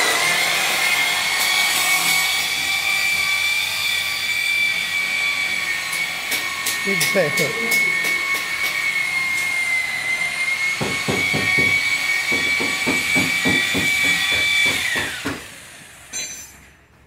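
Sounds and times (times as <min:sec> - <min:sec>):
power tool whining: 0:00.0 - 0:16.5.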